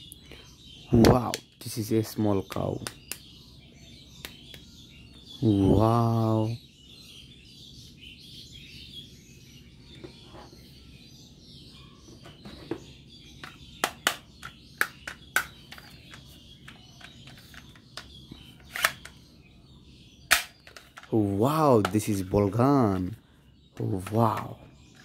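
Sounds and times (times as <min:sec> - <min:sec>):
faint bird chirping: 0:00.0 - 0:25.0
plastic toy gun clicks: 0:20.3 - 0:20.9.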